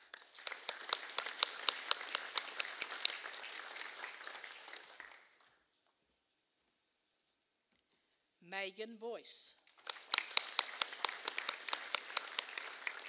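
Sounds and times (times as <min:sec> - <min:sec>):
audience applauding: 0:00.0 - 0:05.5, 0:09.8 - 0:13.0
close hand claps: 0:00.0 - 0:05.6, 0:09.7 - 0:13.0.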